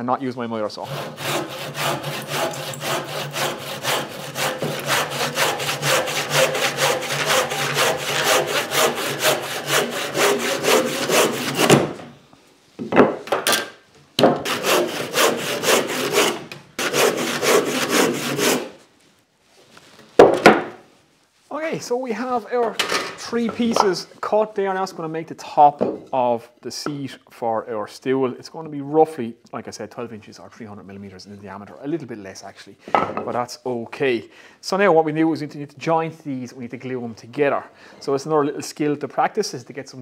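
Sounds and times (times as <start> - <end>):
handsaw cutting timber: 0.8 - 11.9, 14.4 - 18.8.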